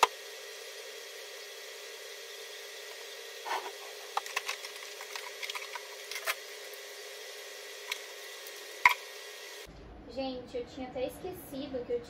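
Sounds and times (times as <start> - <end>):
clicks and rustles of handling: 3.5 - 6.4.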